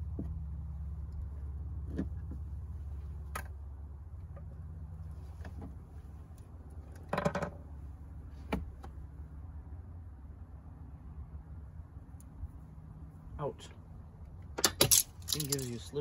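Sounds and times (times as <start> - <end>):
steady low hum: 0.0 - 16.0
plastic clips rattling: 14.6 - 15.8.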